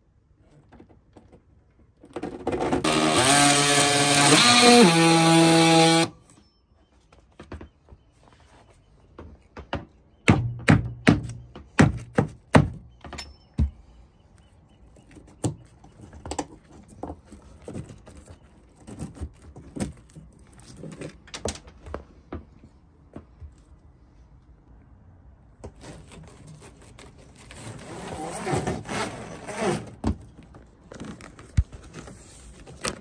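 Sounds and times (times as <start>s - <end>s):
sharp knocks on wood: 9.6s - 13.8s.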